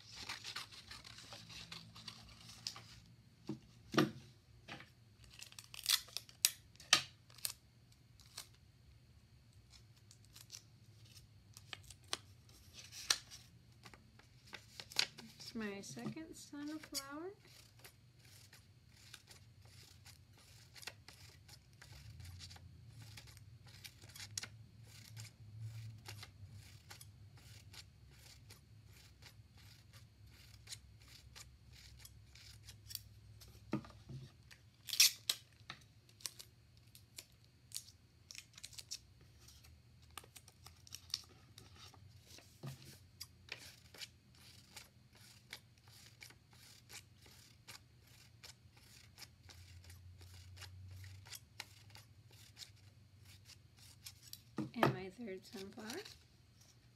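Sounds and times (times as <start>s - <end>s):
scissors snipping paper: 13.8s - 33.0s, 43.5s - 54.4s, 55.4s - 56.2s.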